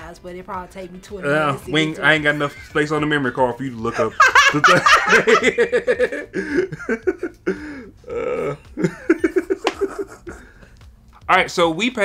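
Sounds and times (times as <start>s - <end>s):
laughter: 3.9s - 7.7s, 8.8s - 10.6s.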